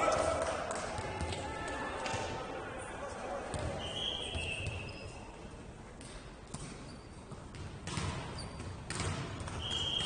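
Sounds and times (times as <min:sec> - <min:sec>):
shoe squeaks: 0:03.9 - 0:05.3, 0:06.8 - 0:07.3, 0:08.3 - 0:08.7.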